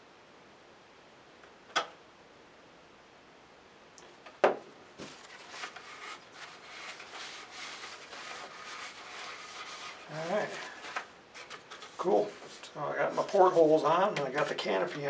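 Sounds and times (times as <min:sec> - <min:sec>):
paper towel rustling: 0:05.0 - 0:15.0.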